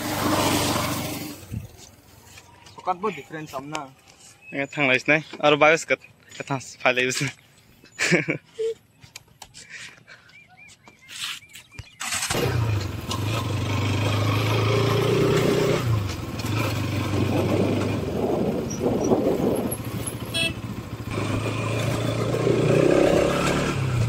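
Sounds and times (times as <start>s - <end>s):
motorcycle engine running: 12.0s - 24.0s.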